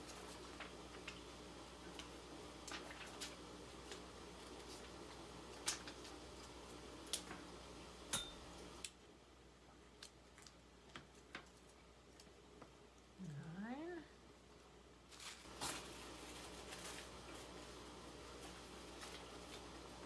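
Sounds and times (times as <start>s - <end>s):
cellophane crinkling: 15.1s - 20.0s.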